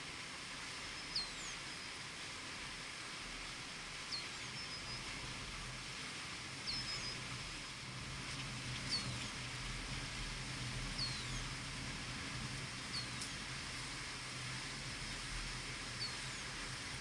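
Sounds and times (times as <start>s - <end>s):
steady outdoor hiss: 0.0s - 17.0s
bird chirping: 11.0s - 11.4s.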